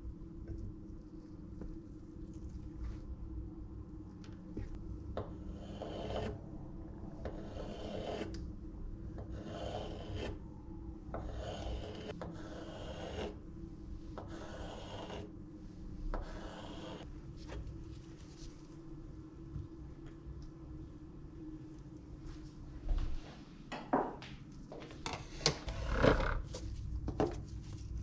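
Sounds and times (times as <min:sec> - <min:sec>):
knife scraping on wooden board: 0:05.5 - 0:06.3.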